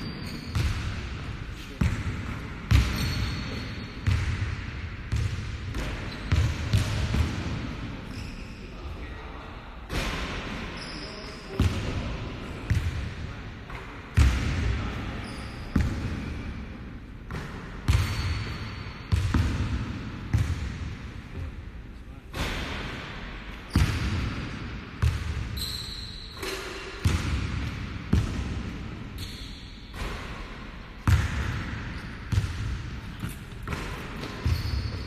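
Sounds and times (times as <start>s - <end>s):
basketballs bouncing on wooden floor: 0.0s - 7.7s, 17.3s - 21.5s, 23.7s - 25.8s, 26.4s - 29.3s, 31.0s - 35.0s.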